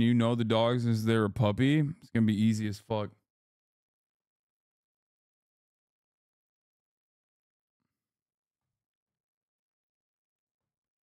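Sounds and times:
man's voice: 0.0 - 3.2.

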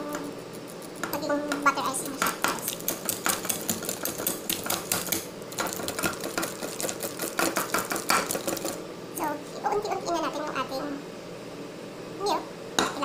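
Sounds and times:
whisk clicking and scraping bowl: 0.1 - 8.8.

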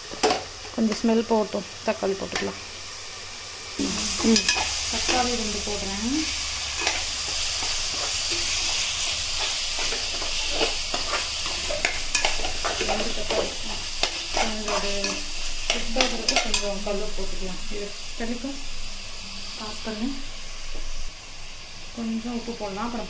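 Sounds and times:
tomatoes sizzling in oil: 0.0 - 23.0
metal spoon scraping a pan: 4.0 - 5.4, 6.3 - 16.8.

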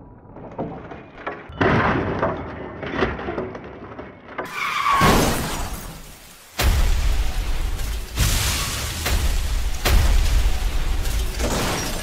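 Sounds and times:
metal crunching and scraping: 0.4 - 12.0
falling squeal: 4.4 - 6.0.

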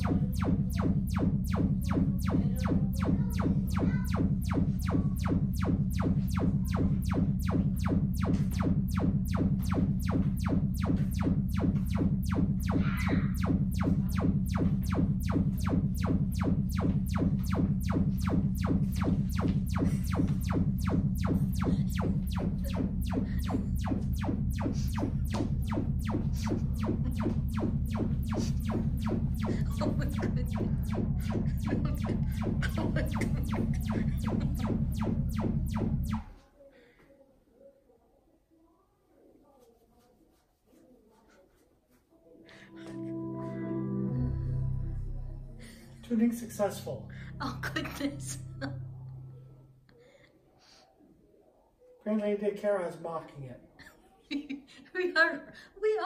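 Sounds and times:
speaker pulsing test tones: 0.0 - 36.3.

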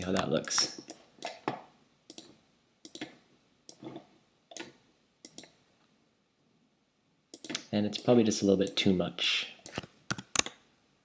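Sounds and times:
computer mouse clicking: 2.1 - 5.6, 7.3 - 8.8, 9.6 - 10.6.

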